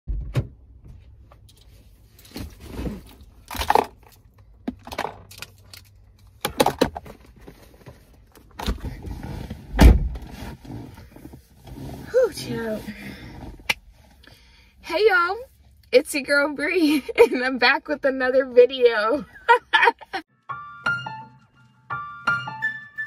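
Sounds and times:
knocks clicks and rustles in car: 0.1s - 1.7s, 3.5s - 11.6s.

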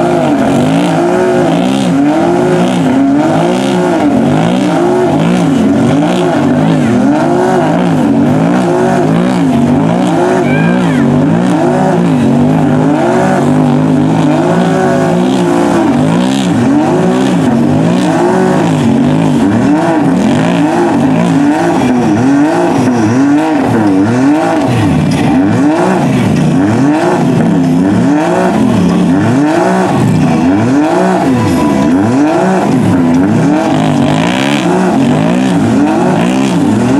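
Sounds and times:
engines revving hard: 0.0s - 36.9s
tyres churning mud: 0.0s - 36.9s.

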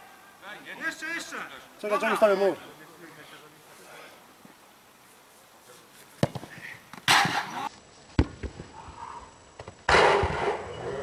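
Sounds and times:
football kick thud: 6.2s - 7.6s.

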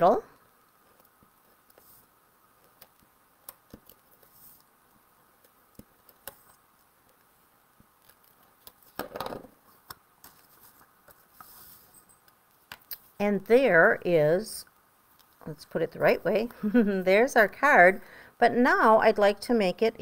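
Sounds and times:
paper rustle: 5.4s - 13.1s.

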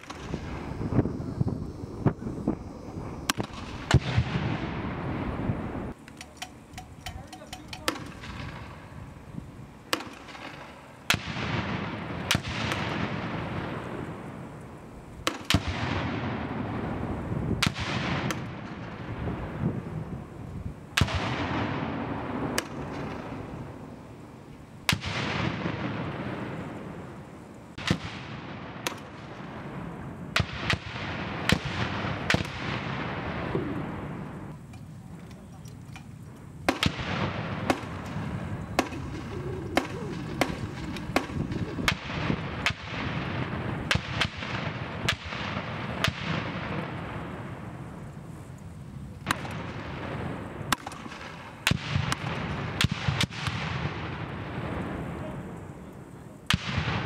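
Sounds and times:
grenade launchers firing: 0.0s - 0.7s, 3.2s - 5.1s, 6.0s - 8.9s, 9.9s - 13.5s, 35.8s - 46.8s, 49.3s - 50.1s, 50.7s - 54.2s
grenades detonating: 36.6s - 46.8s.

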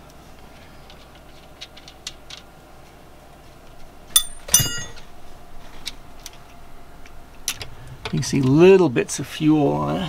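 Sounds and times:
metal tool clinking on metal: 4.2s - 5.1s.

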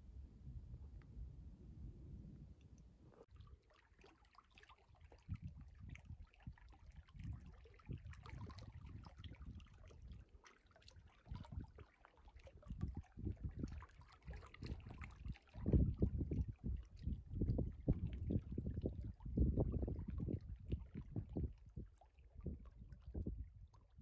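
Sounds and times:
soft ticks and splashes: 2.6s - 24.0s
ripples lapping against rocks: 3.2s - 23.2s
wind buffeting microphone: 5.3s - 10.2s, 12.7s - 24.0s.

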